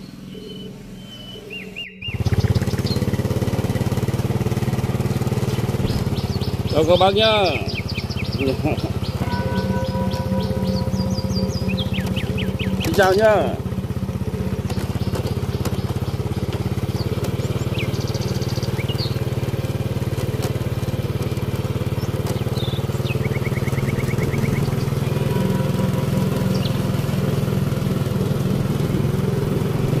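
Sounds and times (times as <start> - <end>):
small engine running: 0.0 - 30.0
faint high chirps: 7.6 - 13.7.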